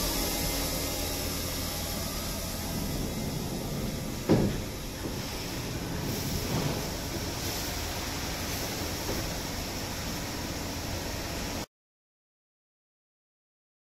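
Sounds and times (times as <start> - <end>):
machining center hiss and hum: 0.0 - 11.7.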